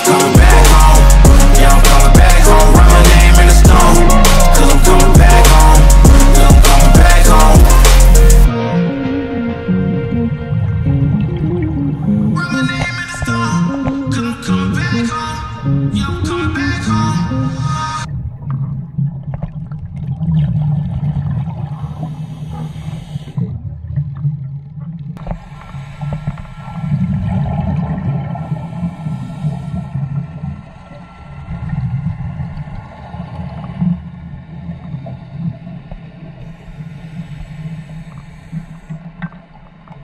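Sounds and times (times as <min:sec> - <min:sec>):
regulator bubbles gurgling: 0:08.9 - 0:40.0
low underwater rumble: 0:09.7 - 0:40.0.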